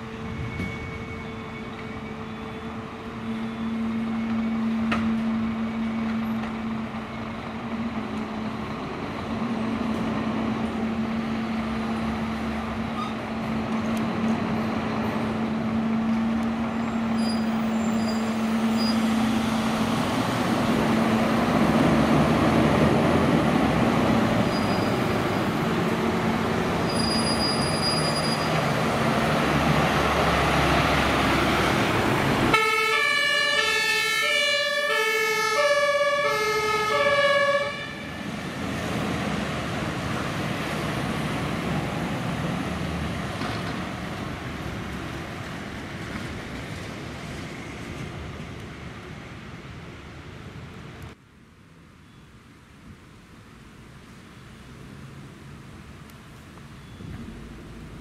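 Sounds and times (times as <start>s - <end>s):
two-tone fire engine siren: 0.0s - 7.9s, 32.5s - 38.3s
diesel engines running: 0.0s - 51.2s.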